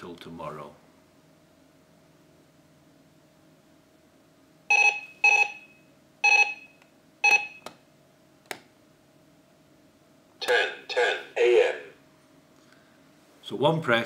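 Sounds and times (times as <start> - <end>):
alarm clock beeps: 4.7 - 7.6.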